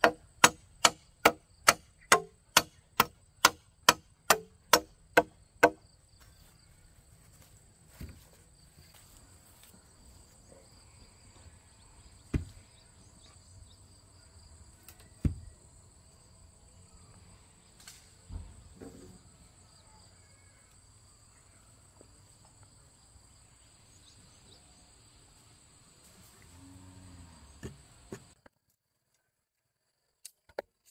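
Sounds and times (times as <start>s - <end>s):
sharp knocks: 0.0s - 5.8s.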